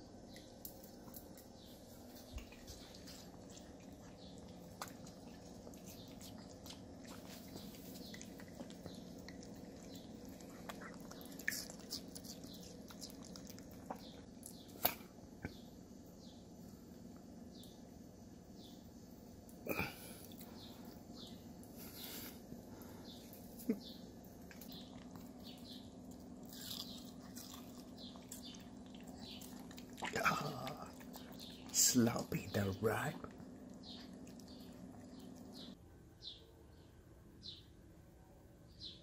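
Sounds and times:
dog licking and chewing: 0:00.7 - 0:14.6, 0:24.4 - 0:32.1, 0:33.2 - 0:35.8.

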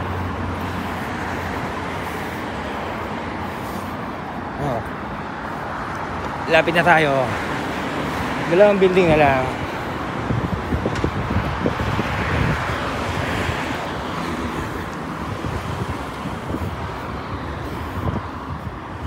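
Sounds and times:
cars passing: 0:00.0 - 0:19.0
wind buffeting microphone: 0:07.3 - 0:19.0.

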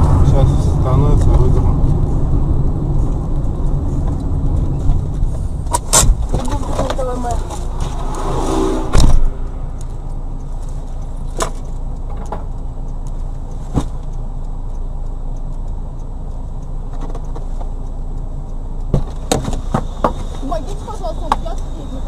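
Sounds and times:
car engine low rumble: 0:00.0 - 0:22.0
sudden loud bang: 0:07.6 - 0:09.7.

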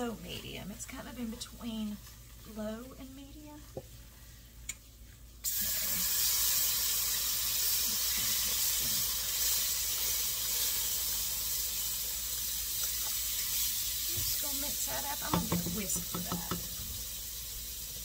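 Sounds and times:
milk sizzling in hot pan: 0:01.0 - 0:18.0.

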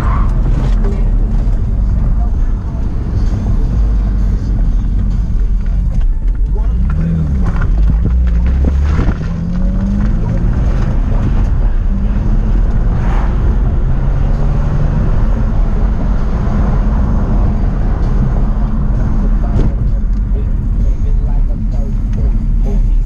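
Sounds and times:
car engine from inside cabin: 0:00.0 - 0:23.0
road rumble: 0:00.0 - 0:23.0
wind noise: 0:07.4 - 0:20.3.

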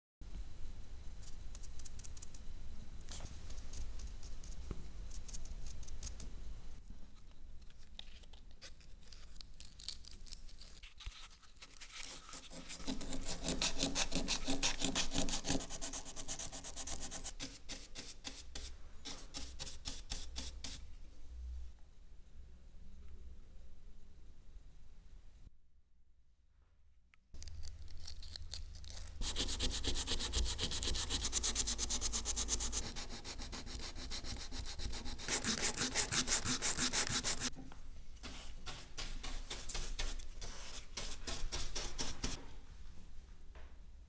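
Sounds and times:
sandpaper rubbing on wood: 0:12.0 - 0:20.8, 0:29.2 - 0:37.5, 0:38.3 - 0:42.4.

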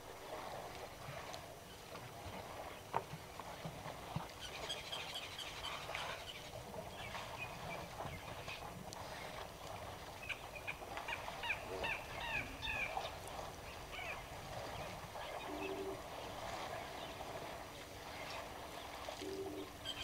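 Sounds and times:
birds chirping: 0:10.2 - 0:20.0.

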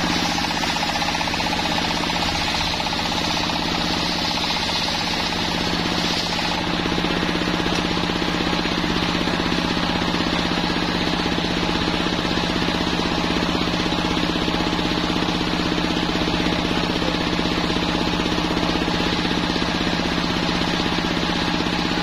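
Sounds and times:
saw blade spinning: 0:00.0 - 0:11.4
sawmill engine knocking: 0:00.0 - 0:22.0.

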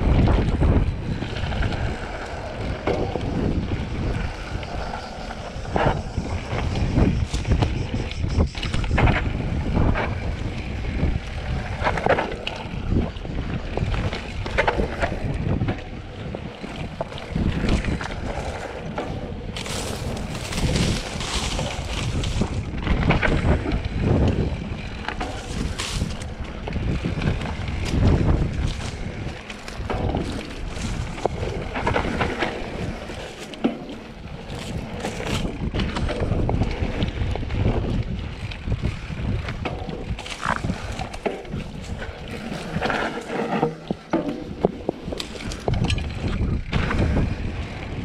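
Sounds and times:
bike tyres on dirt: 0:00.0 - 0:48.0
wind rushing over microphone: 0:00.0 - 0:48.0
bike rattling and knocking: 0:16.6 - 0:48.0.

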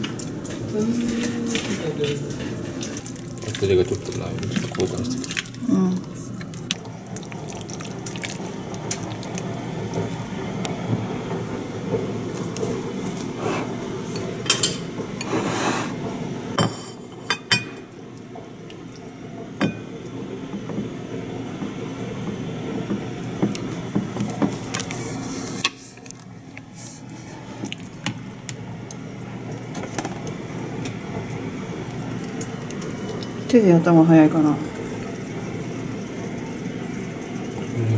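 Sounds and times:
steady low hum: 0:00.0 - 0:37.9
wet squishing of meat: 0:02.8 - 0:10.4.

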